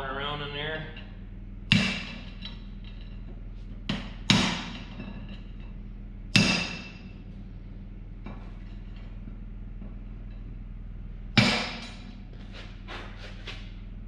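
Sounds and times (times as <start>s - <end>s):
hammer striking steel: 1.7s - 2.7s, 3.9s - 5.3s, 6.3s - 7.2s, 11.4s - 12.1s.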